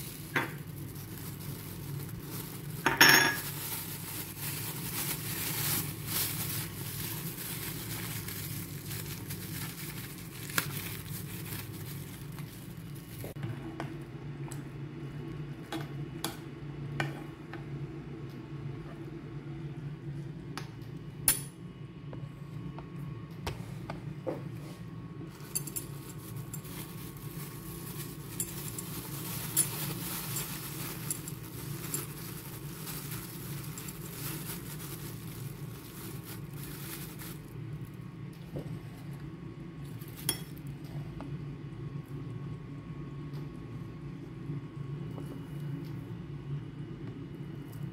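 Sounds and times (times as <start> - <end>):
plastic bag rustling: 0.0 - 13.4, 25.3 - 38.0.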